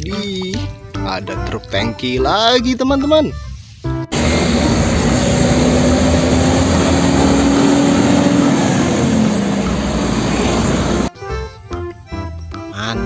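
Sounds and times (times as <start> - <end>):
heavy truck driving past: 4.1 - 11.1.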